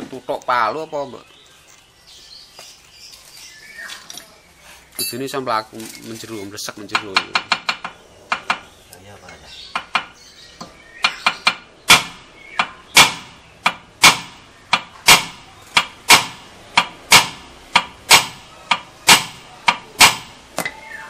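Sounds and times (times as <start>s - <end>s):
hammer striking metal hub: 13.0s - 20.7s.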